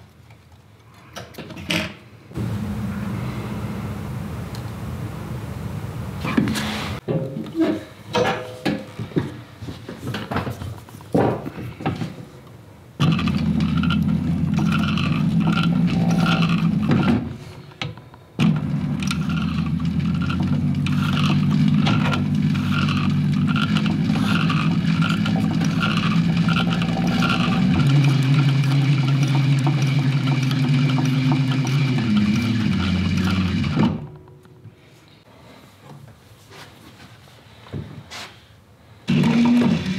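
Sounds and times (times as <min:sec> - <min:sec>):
sewing machine motor hum: 0:13.0 - 0:17.2, 0:18.4 - 0:34.0, 0:39.1 - 0:39.9
sewing machine stitching clack: 0:18.4 - 0:34.0.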